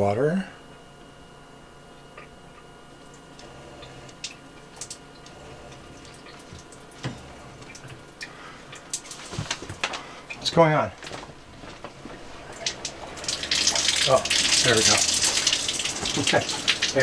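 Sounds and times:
steady hum: 0.0 - 17.0
faint drips and clicks: 3.0 - 10.5, 12.5 - 17.0.

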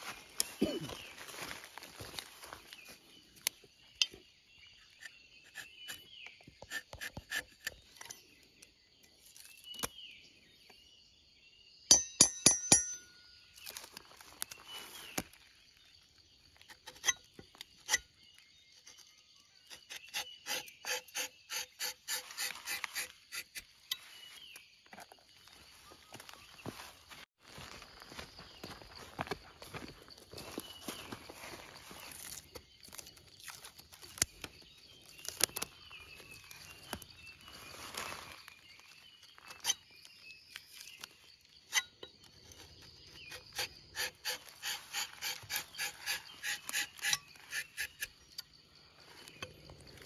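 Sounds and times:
knife scraping bark: 4.8 - 8.3, 16.6 - 18.2, 18.8 - 24.3, 41.6 - 48.5
sharp metallic clinks: 11.9 - 13.4.

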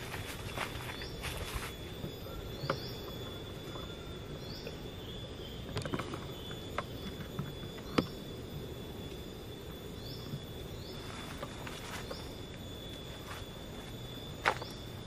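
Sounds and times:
high-pitched insect drone: 0.0 - 15.0.

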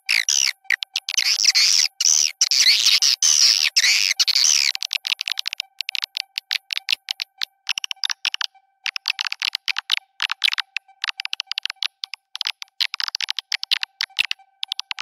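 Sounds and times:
swiftlet chirping: 0.0 - 9.8
rapid dry chittering clicks: 0.1 - 15.0
faint steady tone: 3.6 - 15.0.

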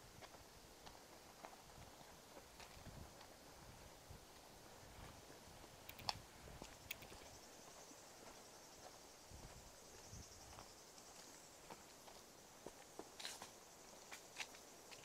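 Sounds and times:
footsteps on dirt road: 0.0 - 15.0
sharp clicks: 5.9 - 7.3.

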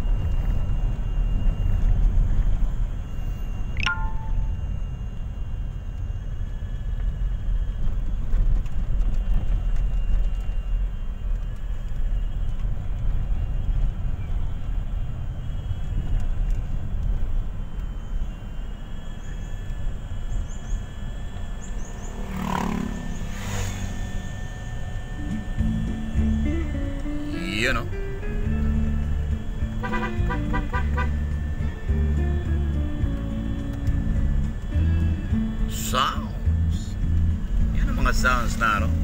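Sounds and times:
van engine and tyre rumble: 0.0 - 39.0.

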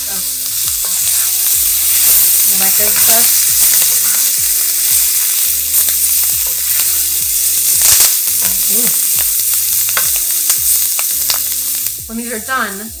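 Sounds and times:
peppers sizzling in oil: 0.0 - 13.0
sharp popping: 0.0 - 13.0.

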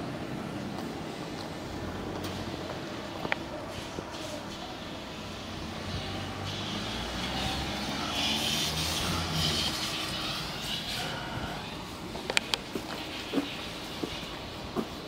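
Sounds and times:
vehicle engine passing: 4.9 - 12.2.

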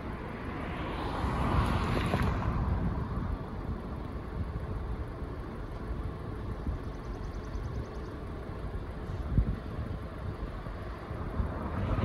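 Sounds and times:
vehicle passing: 0.0 - 3.2, 10.9 - 12.0
wind rumbling on microphone: 0.0 - 12.0.

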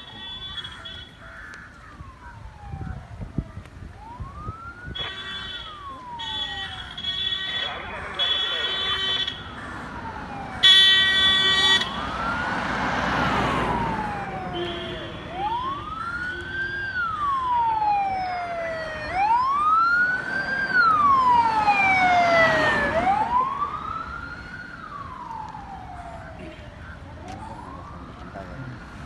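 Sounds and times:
vehicle siren wailing: 0.0 - 29.0
second siren: 1.9 - 29.0.

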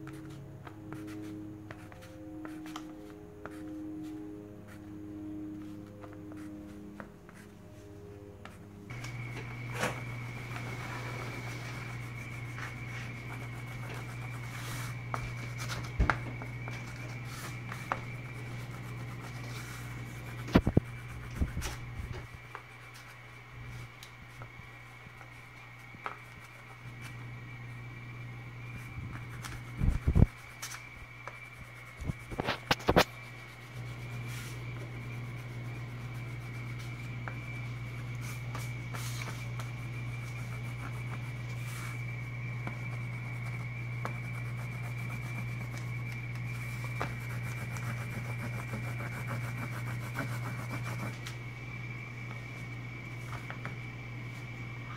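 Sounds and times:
steady low hum: 0.0 - 54.9
thin high whine: 0.0 - 54.9
pastel scratching on paper: 5.5 - 7.5, 9.0 - 23.2, 28.8 - 42.0, 42.6 - 51.2.

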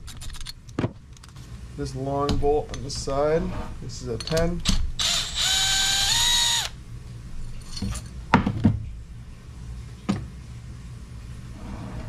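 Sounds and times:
cordless drill motor whine: 5.0 - 6.8.

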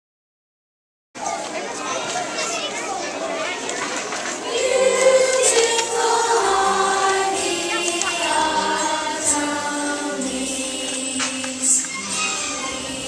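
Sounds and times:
children's choir singing: 3.9 - 13.0
low musical accompaniment: 4.5 - 13.0.

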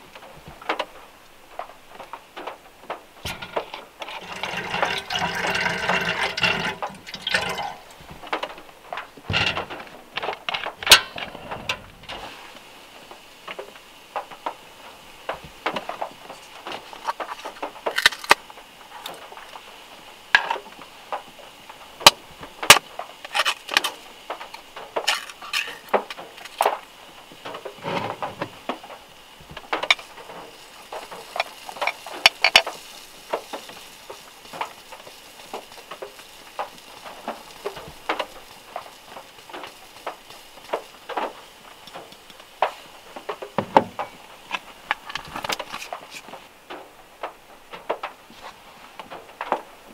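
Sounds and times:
rain hiss: 0.0 - 49.9
glass jar and mug clinking: 4.2 - 7.9.

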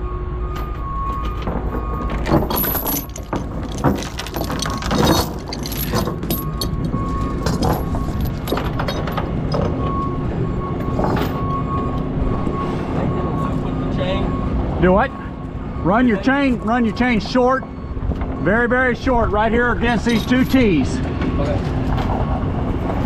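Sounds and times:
chains clinking on wooden deck: 1.1 - 9.8, 11.0 - 11.4, 19.8 - 21.0.

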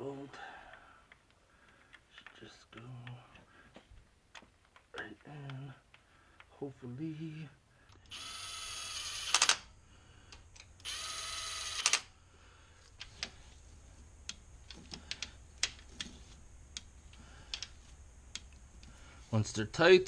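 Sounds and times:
cordless ratchet motor whine: 8.0 - 9.6, 10.3 - 12.1.

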